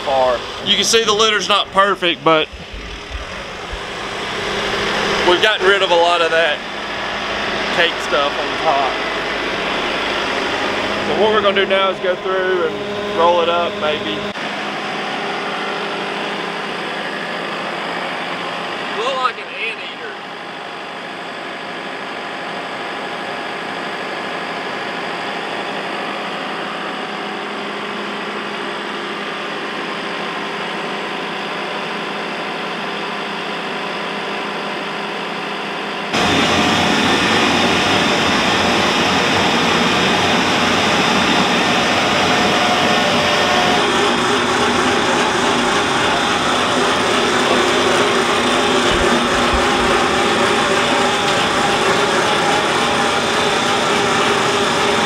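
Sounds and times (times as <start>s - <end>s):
windrower rotor churning litter: 0.0s - 19.1s, 36.2s - 55.0s
engine running steadily: 0.0s - 55.0s.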